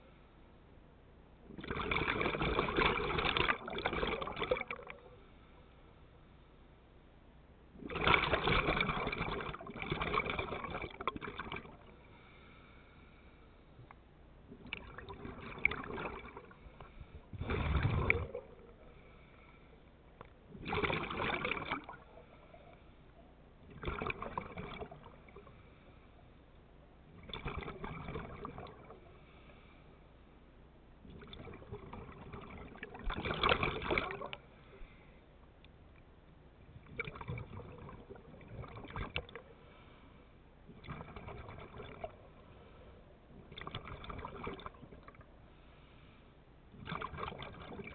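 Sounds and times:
bubbles gurgling underwater: 0:01.5 - 0:05.2, 0:07.8 - 0:12.0, 0:14.5 - 0:18.9, 0:20.5 - 0:22.7, 0:23.6 - 0:25.5, 0:27.1 - 0:29.1, 0:31.1 - 0:34.4, 0:36.8 - 0:39.4, 0:40.7 - 0:42.5, 0:43.3 - 0:45.3, 0:46.8 - 0:47.9.

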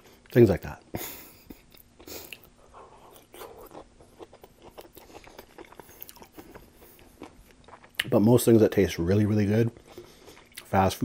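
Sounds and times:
person chewing food: 0:01.4 - 0:08.1, 0:09.7 - 0:10.7.

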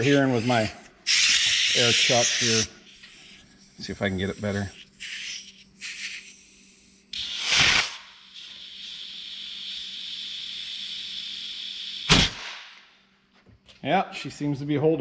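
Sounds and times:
compressed air hissing: 0:00.0 - 0:12.5
loud air blast: 0:01.0 - 0:03.4, 0:07.2 - 0:12.8.

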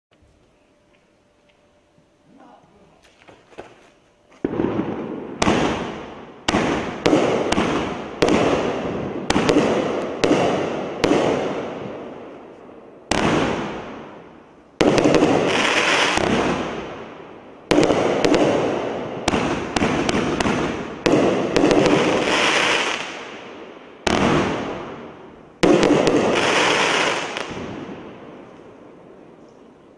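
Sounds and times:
firework shots: 0:04.4 - 0:12.4, 0:13.0 - 0:14.2, 0:14.8 - 0:28.6
firework hiss: 0:14.8 - 0:16.9, 0:17.8 - 0:23.4.

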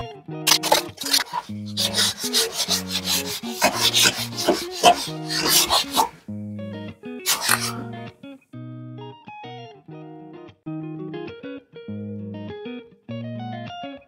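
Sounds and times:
sandpaper rubbing car panel: 0:00.5 - 0:06.2
guitar music: 0:06.1 - 0:14.0.

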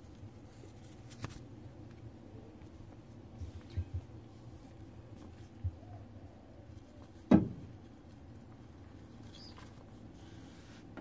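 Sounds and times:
soft thump: 0:07.3 - 0:07.7.

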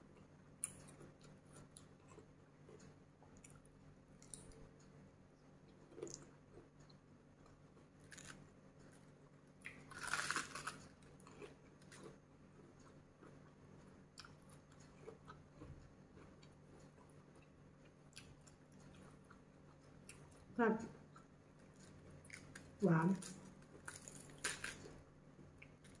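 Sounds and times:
chewing with wet mouth clicks: 0:05.7 - 0:08.4, 0:09.6 - 0:20.5
crunch of raw cabbage: 0:22.3 - 0:25.0.

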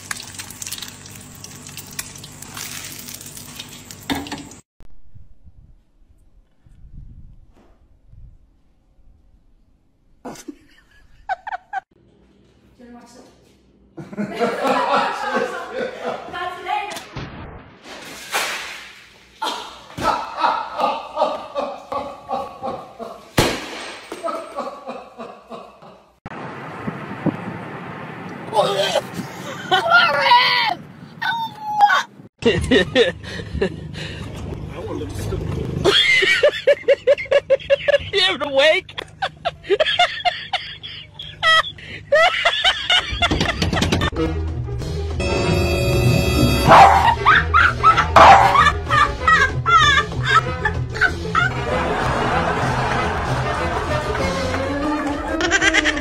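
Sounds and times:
egg sizzling in hot oil: 0:00.0 - 0:04.6
woman laughing: 0:10.3 - 0:11.9, 0:14.0 - 0:16.4, 0:28.6 - 0:30.3, 0:31.9 - 0:33.8, 0:35.9 - 0:44.2, 0:47.0 - 0:53.1, 0:55.2 - 0:56.0.

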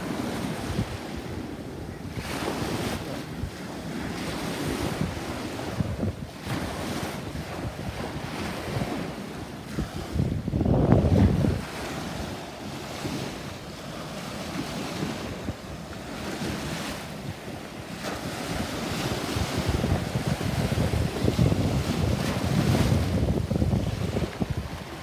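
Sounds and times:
small waves breaking on beach: 0:00.0 - 0:25.0
wind buffeting microphone: 0:00.0 - 0:25.0.

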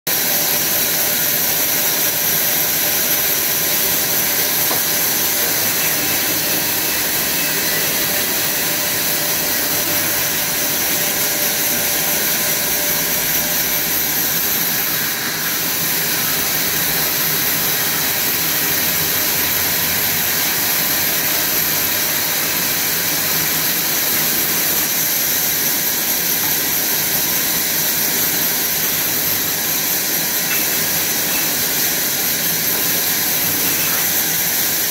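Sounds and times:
band saw cutting log: 0:00.1 - 0:34.9.

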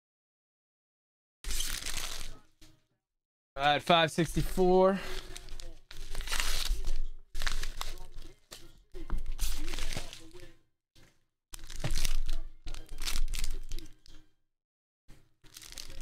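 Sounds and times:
mailer tearing and crinkling: 0:01.5 - 0:02.4, 0:05.0 - 0:08.4, 0:09.3 - 0:10.4, 0:11.6 - 0:14.0, 0:15.5 - 0:16.0
tape peeling off mailer: 0:01.5 - 0:02.4
plastic bag crinkling: 0:01.5 - 0:02.5, 0:04.4 - 0:08.5, 0:09.4 - 0:10.4, 0:11.6 - 0:14.1, 0:15.4 - 0:16.0.

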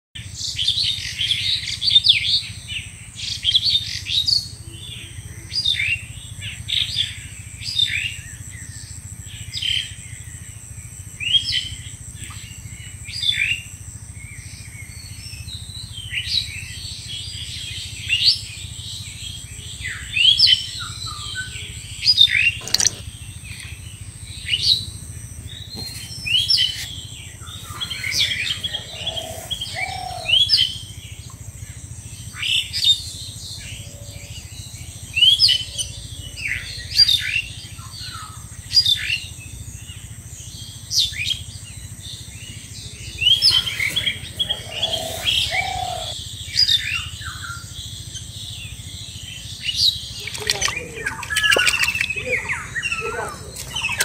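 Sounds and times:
birds chirping: 0:17.0 - 0:39.6, 0:40.6 - 0:54.0.

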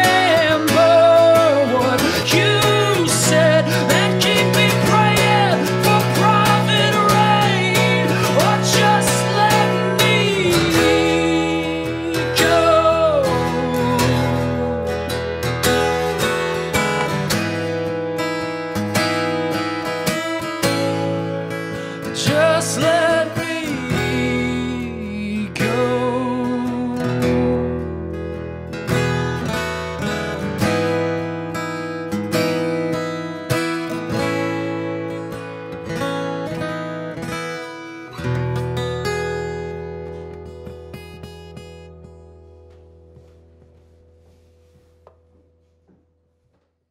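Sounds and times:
man singing: 0:00.0 - 0:15.2, 0:22.0 - 0:28.0
acoustic guitar strumming: 0:00.0 - 0:46.6.

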